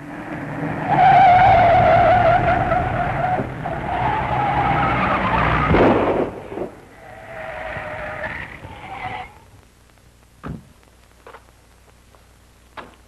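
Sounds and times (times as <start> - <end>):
tires squealing: 0.2 - 9.5
loud rushing noise: 5.7 - 7.0.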